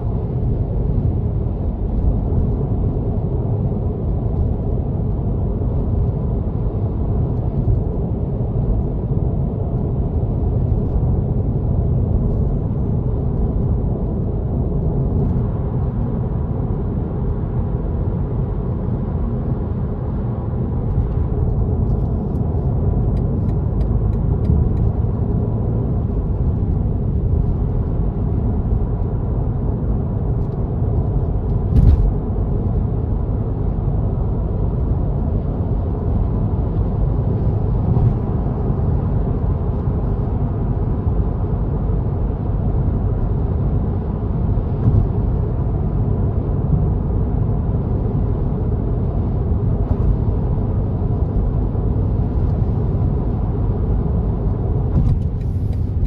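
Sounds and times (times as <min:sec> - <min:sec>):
car road and tyre noise: 0:00.0 - 0:56.0
sharp thump: 0:31.7 - 0:32.2.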